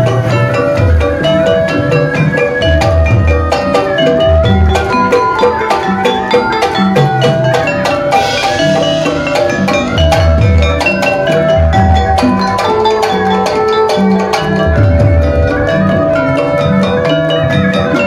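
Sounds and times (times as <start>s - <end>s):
gamelan playing: 0.0s - 18.0s
deep gong strokes: 14.6s - 17.8s.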